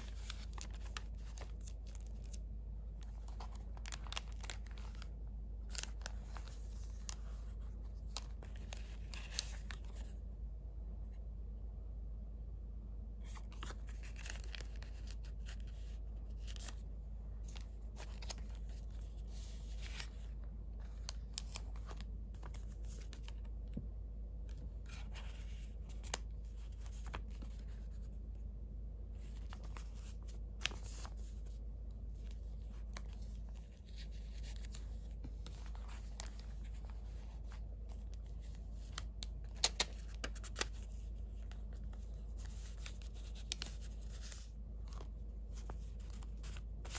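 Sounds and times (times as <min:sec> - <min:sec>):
paper rustles and scratches: 0:00.0 - 0:02.4, 0:24.5 - 0:28.2, 0:29.2 - 0:46.9
steady low hum: 0:00.0 - 0:46.9.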